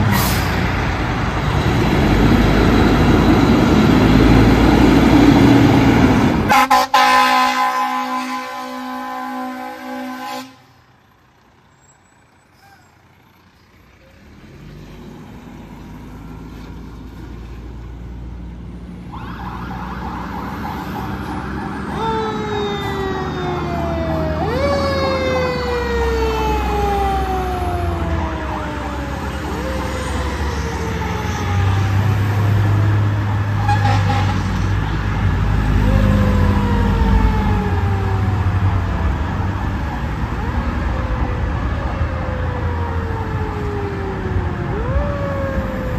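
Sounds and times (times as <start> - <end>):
fire engine pulling away: 0.0 - 45.9
siren: 1.1 - 10.7, 18.8 - 45.9
air horn blast: 6.5 - 10.8, 33.6 - 34.6.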